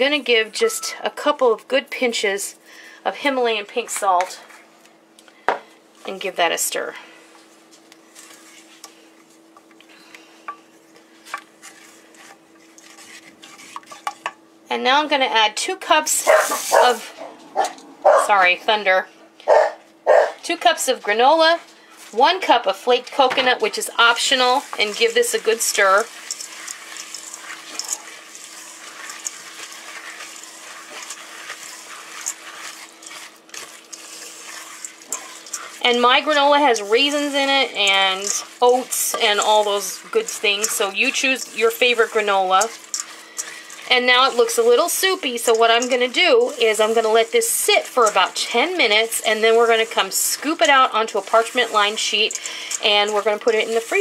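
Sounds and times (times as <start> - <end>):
faint steady hum: 0.0 - 54.0
wooden spoon stirring chocolate: 11.2 - 14.3, 23.7 - 54.0.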